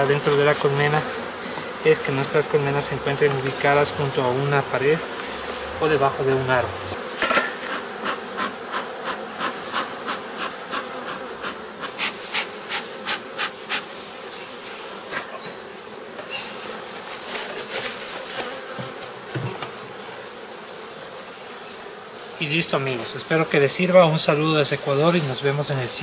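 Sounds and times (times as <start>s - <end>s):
bee smoker bellows puffs: 0.0s - 1.9s, 3.2s - 19.9s
bees buzzing: 0.0s - 26.0s.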